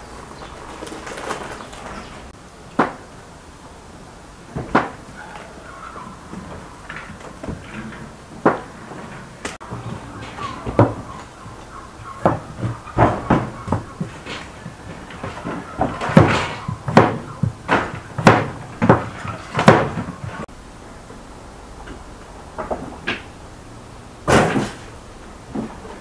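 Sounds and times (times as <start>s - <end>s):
irregular hard knocks and clacks: 6.4s - 20.5s.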